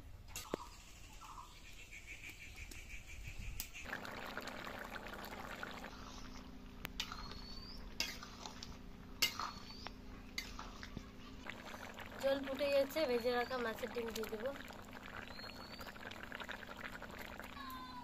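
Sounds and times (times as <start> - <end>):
curry bubbling at a boil: 3.8 - 18.0
ladle striking pan: 9.2 - 9.7.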